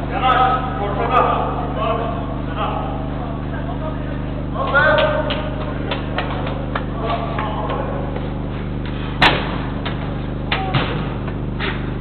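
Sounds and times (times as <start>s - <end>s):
electrical hum: 0.0s - 12.0s
football thudding: 9.2s - 11.4s.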